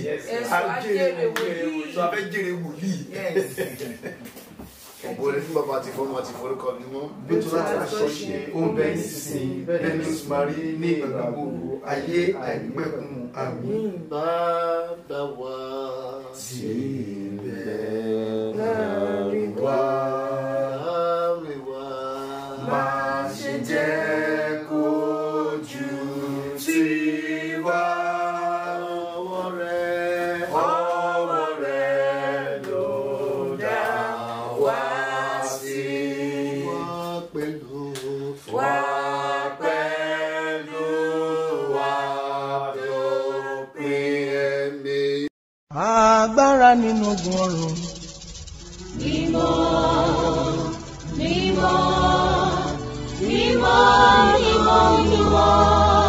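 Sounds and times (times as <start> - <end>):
voices singing a hymn: 7.2 - 12.3, 13.3 - 45.3, 48.9 - 56.0.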